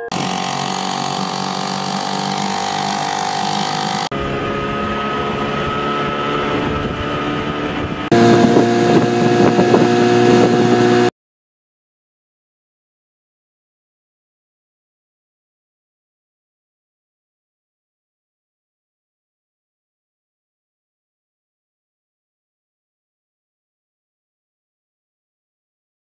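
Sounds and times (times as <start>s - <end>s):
outboard motors running: 0.0s - 11.1s.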